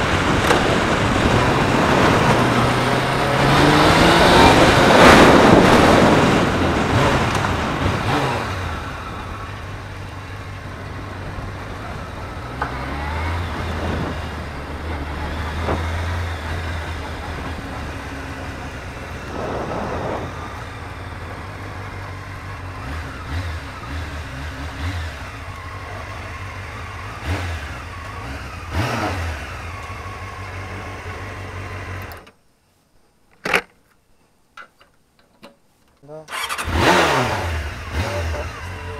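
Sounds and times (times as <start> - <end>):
rushing wind: 0.0 - 26.0
motorcycle engine: 0.0 - 32.3, 36.3 - 38.9
engine revving blips: 36.3 - 38.9.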